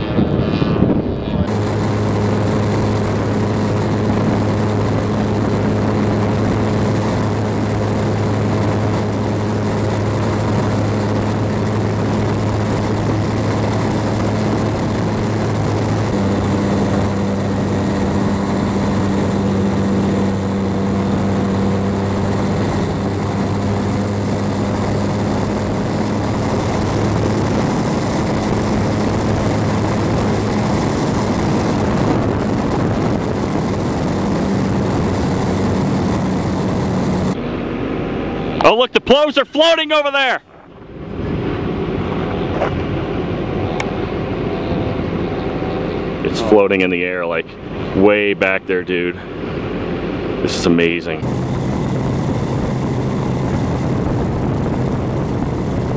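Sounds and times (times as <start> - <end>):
rush of air: 0.0 - 38.3, 51.2 - 55.9
drone propeller motor humming: 0.0 - 38.6, 51.1 - 55.9.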